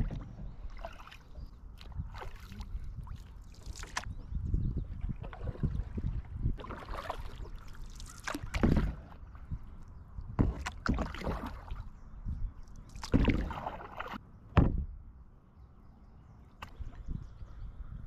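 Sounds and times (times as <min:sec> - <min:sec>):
canoe paddle splashing: 0:00.0 - 0:04.1, 0:04.9 - 0:09.6, 0:10.4 - 0:12.0, 0:12.8 - 0:14.2.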